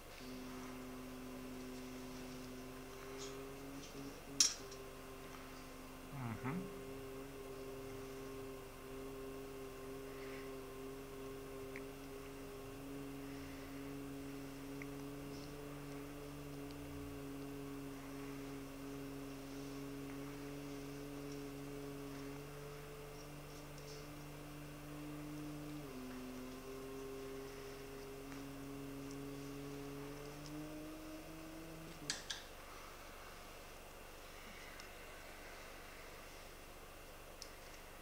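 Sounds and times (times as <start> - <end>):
low sustained hum: 0.0 - 38.0.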